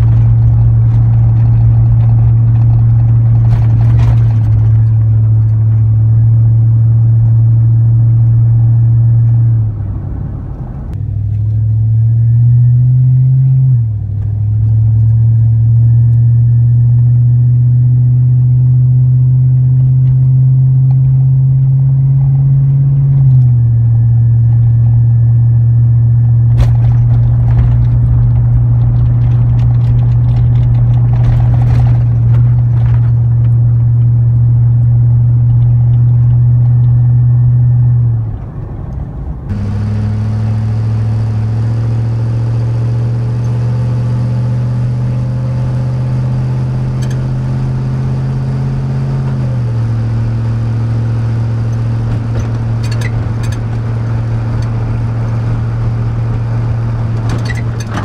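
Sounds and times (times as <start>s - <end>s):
engine exhaust droning: 0.0s - 58.0s.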